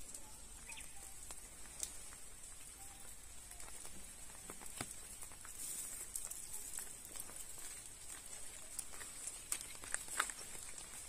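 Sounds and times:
faint chirps: 0:00.0 - 0:05.2
footsteps on paved path: 0:00.0 - 0:11.0.

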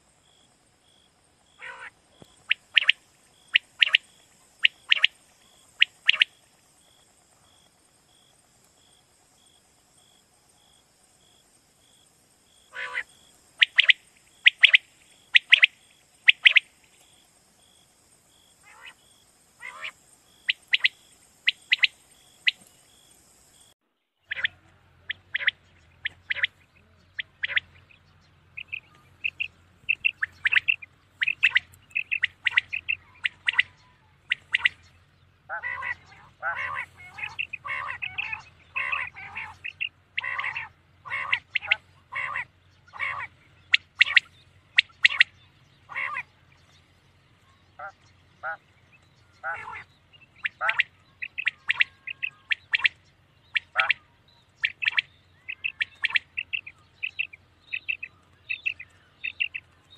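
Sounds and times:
low steady hum: 0:00.0 - 0:59.9
quail calling: 0:01.5 - 0:06.4, 0:12.7 - 0:16.7, 0:18.6 - 0:19.0, 0:19.6 - 0:22.6, 0:24.3 - 0:28.0, 0:28.6 - 0:34.9, 0:35.5 - 0:46.3, 0:47.8 - 0:48.7, 0:49.3 - 0:59.7.

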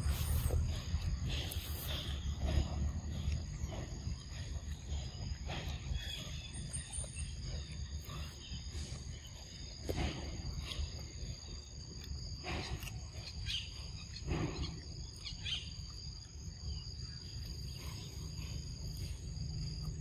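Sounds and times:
high insect trill: 0:00.0 - 0:20.0.

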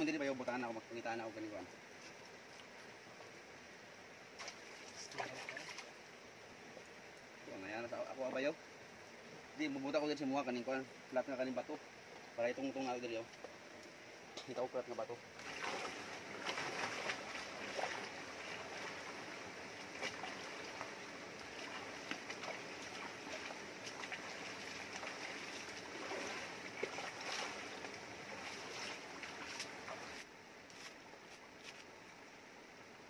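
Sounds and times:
person wading through water: 0:04.4 - 0:06.0, 0:15.4 - 0:30.3.

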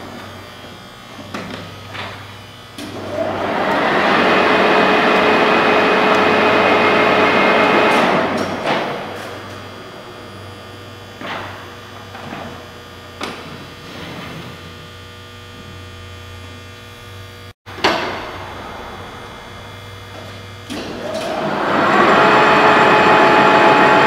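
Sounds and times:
boring mill whine: 0:00.0 - 0:24.0
electrical hum: 0:00.0 - 0:24.0.

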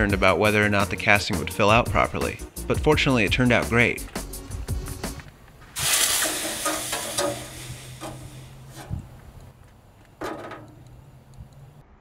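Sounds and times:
hot metal hissing in water: 0:05.8 - 0:09.1.

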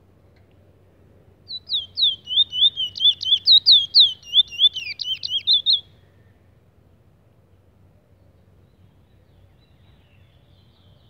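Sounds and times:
finch whistled song: 0:01.5 - 0:06.0.

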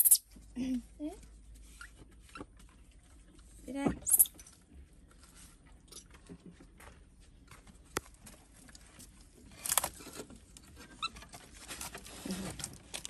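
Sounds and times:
rustle: 0:08.7 - 0:13.0.

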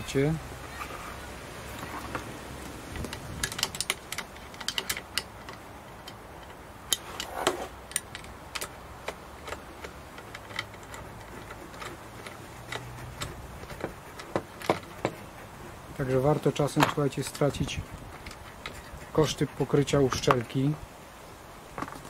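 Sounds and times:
metallic clicks of hand tools: 0:03.0 - 0:15.2.

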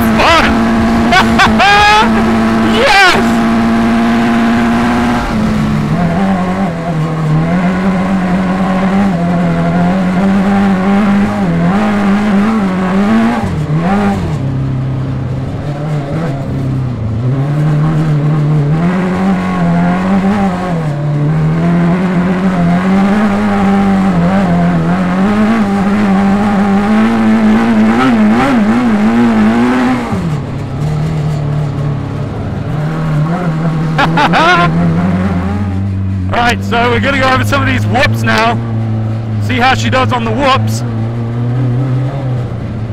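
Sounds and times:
buggy engine running hard: 0:00.0 - 0:42.9.

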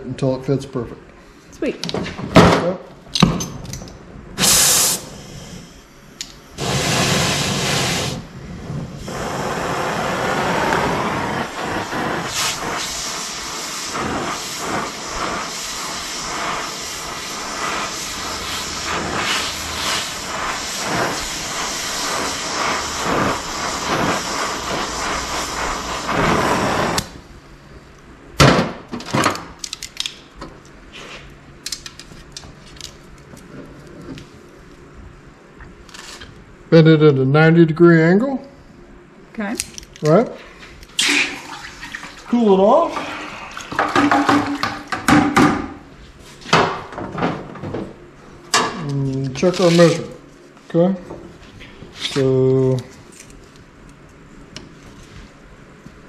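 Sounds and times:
torch flame hissing: 0:04.3 - 0:27.4, 0:40.9 - 0:45.1, 0:49.2 - 0:50.3
gas bursts: 0:04.4 - 0:05.9, 0:06.5 - 0:27.2.

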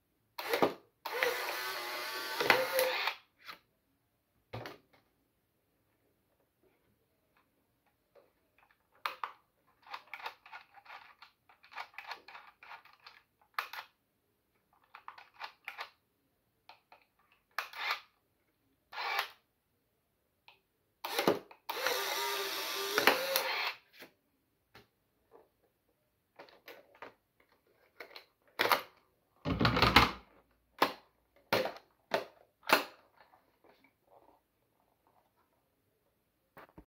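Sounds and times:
film ejection motor whirring: 0:01.1 - 0:03.2, 0:21.1 - 0:23.8.

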